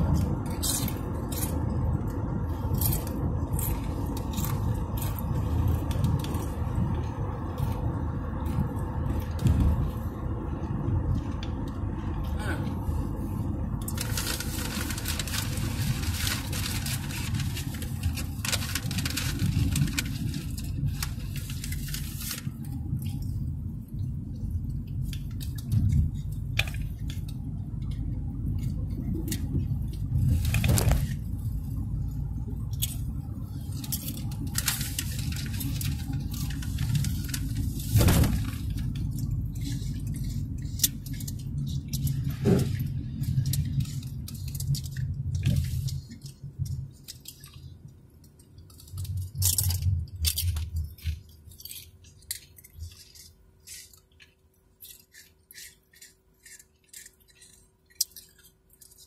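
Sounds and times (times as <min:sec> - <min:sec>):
car cabin road rumble: 0:00.0 - 0:51.8
sharp clicks and crackles: 0:13.8 - 0:23.4, 0:32.5 - 0:59.0.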